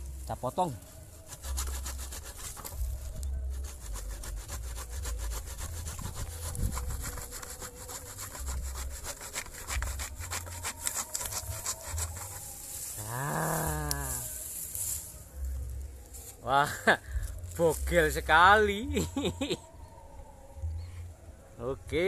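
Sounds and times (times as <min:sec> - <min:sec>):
handsaw cutting wood: 0:01.3 - 0:14.2.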